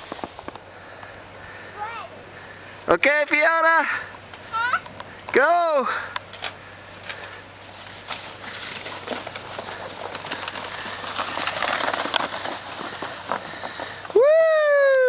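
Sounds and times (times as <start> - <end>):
plastic sled scraping over snow: 0.0 - 0.9, 6.4 - 14.2.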